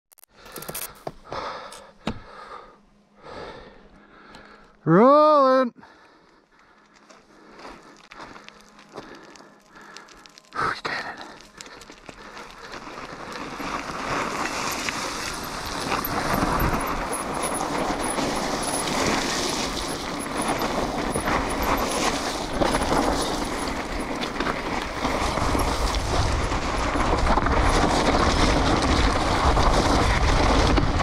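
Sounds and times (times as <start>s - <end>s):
bike tyres crunching on gravel: 6.3s - 31.0s
bike clattering: 11.9s - 30.9s.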